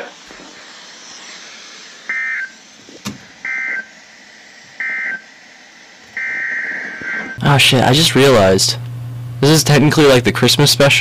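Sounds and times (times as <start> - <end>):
warbling two-tone data bursts: 2.0 - 2.7, 3.4 - 4.0, 4.8 - 5.4, 6.1 - 7.4.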